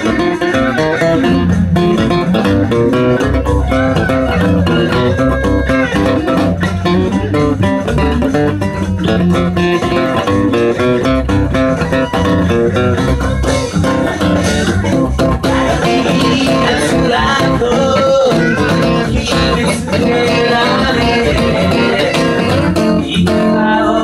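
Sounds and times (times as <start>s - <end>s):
acoustic guitar strummed: 0.0s - 24.0s
man singing: 14.8s - 24.0s.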